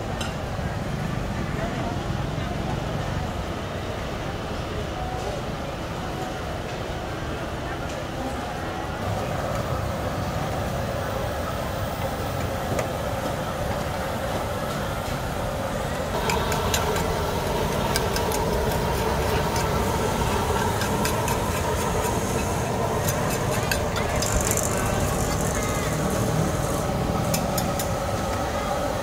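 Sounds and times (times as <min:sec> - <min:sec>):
crowd voices: 0:00.0 - 0:29.0
oil bubbling and crackling in wok: 0:16.1 - 0:29.0.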